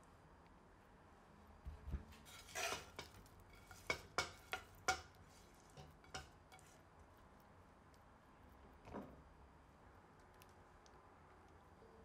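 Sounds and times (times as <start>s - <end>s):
cookware clinking on ceramic dish: 2.3s - 5.2s, 5.8s - 6.7s.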